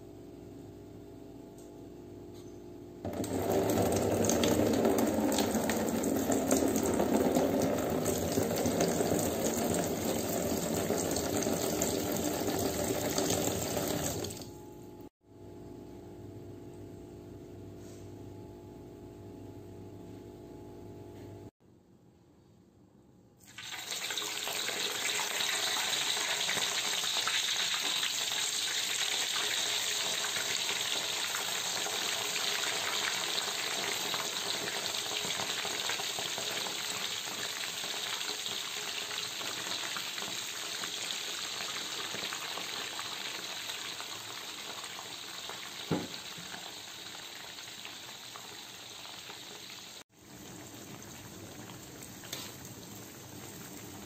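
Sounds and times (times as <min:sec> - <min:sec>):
meat sizzling in hot oil: 0:23.5 - 0:54.0.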